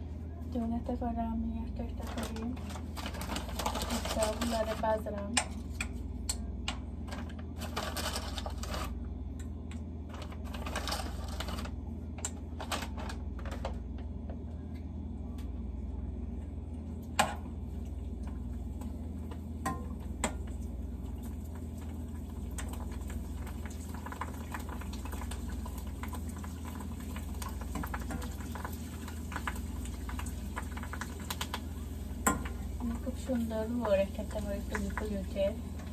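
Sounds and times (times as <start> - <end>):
steady low hum: 0.0 - 35.9
meat frying in oil: 18.1 - 35.9.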